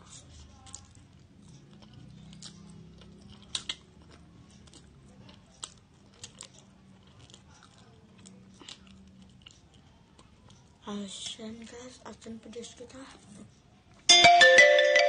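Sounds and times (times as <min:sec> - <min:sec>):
person chewing and slurping noodles: 0:00.1 - 0:10.7.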